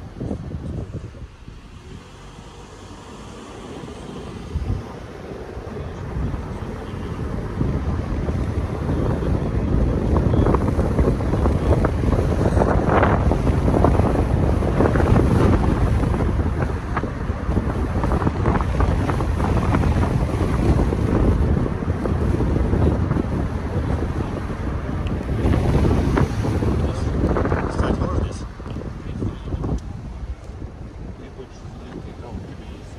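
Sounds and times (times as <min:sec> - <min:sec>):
low road noise rumble: 0:00.0 - 0:32.9
wind buffeting microphone: 0:00.0 - 0:32.9.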